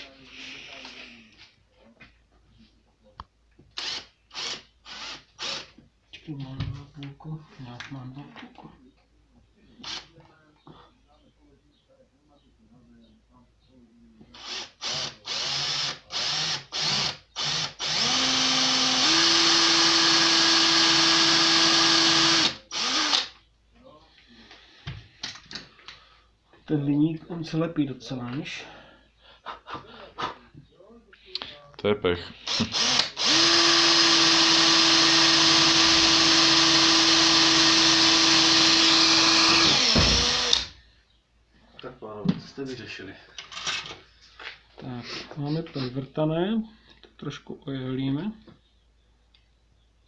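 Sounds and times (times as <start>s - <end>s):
cordless drill drilling: 3.8s - 5.7s, 14.4s - 23.3s, 32.4s - 40.8s.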